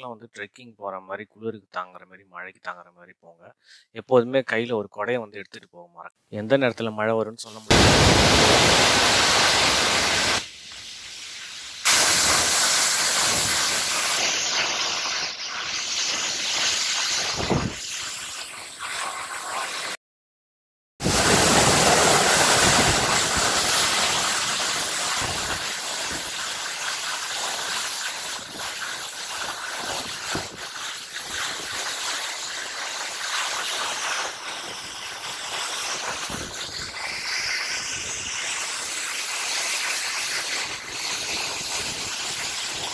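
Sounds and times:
waterfall rushing over rocks: 7.7 - 10.5.

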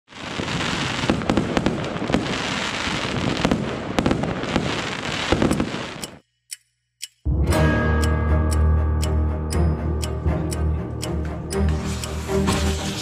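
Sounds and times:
fireworks crackling and banging: 0.1 - 6.2, 11.8 - 13.0.

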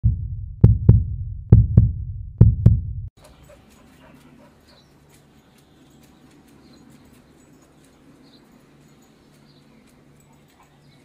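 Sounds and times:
heartbeat thumps: 0.0 - 3.1.

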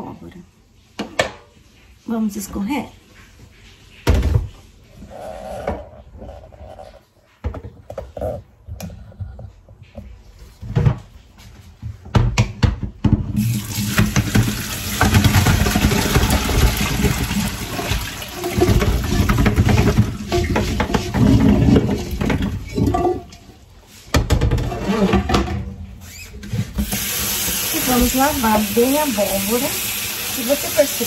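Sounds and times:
water draining through colander: 13.2 - 23.6, 26.5 - 31.0.

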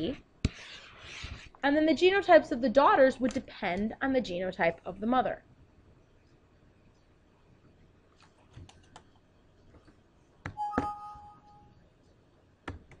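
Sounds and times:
two-tone alert chime: 10.6 - 11.7.

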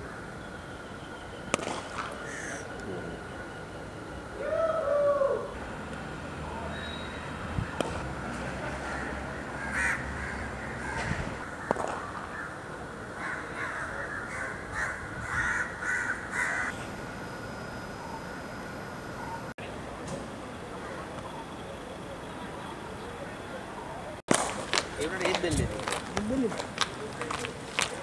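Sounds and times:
cricket bat striking ball: 1.5 - 2.2, 11.7 - 12.1
crows cawing: 2.2 - 2.7, 8.8 - 12.6, 13.2 - 16.8.

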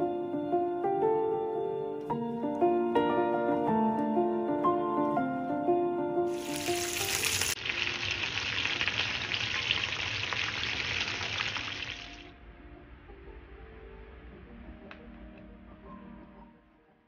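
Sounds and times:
background music: 0.0 - 7.6, 12.3 - 17.0
chicken deep-frying in oil: 6.3 - 12.3.

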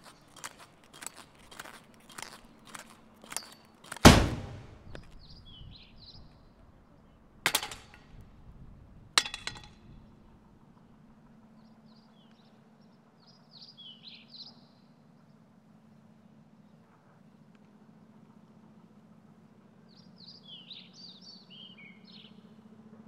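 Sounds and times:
metal pogo stick clattering on asphalt: 0.0 - 5.2, 7.4 - 8.3, 9.2 - 10.0.

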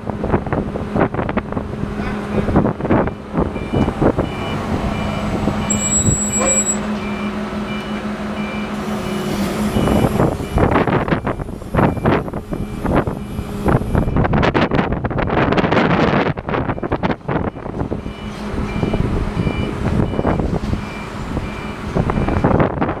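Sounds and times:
wind gusts on microphone: 0.0 - 6.1, 9.7 - 23.0
heavy machine engine running: 0.0 - 23.0
backup alarm beeping: 3.1 - 14.3, 16.7 - 22.6.

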